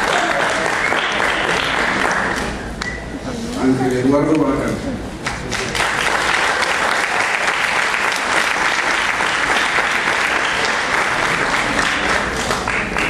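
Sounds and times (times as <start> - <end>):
audience applauding: 0.0 - 2.7, 5.2 - 13.0.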